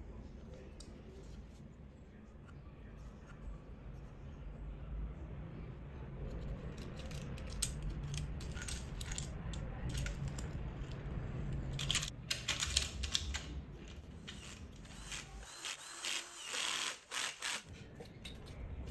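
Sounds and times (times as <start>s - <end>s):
cordless screwdriver whirring: 14.2s - 17.6s.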